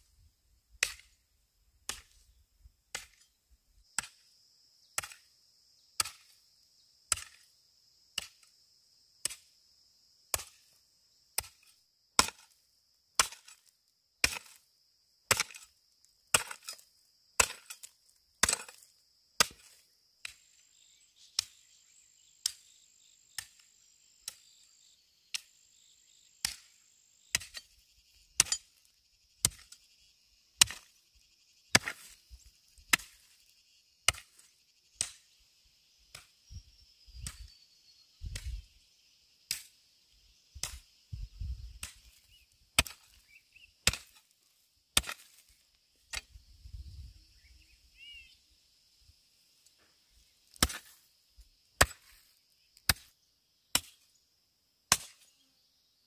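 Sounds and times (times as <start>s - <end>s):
insects buzzing: 0.0s - 56.0s
hand tool chopping strikes: 18.4s - 18.8s, 42.8s - 43.1s, 43.8s - 44.2s, 45.0s - 45.4s, 50.5s - 51.0s, 51.8s - 52.2s, 54.9s - 55.2s.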